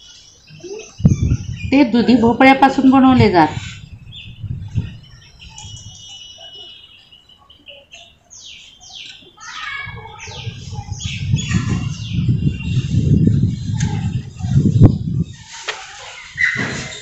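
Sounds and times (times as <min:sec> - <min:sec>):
birds chirping: 0:00.0 - 0:17.0
low rumbling noise: 0:09.9 - 0:15.5.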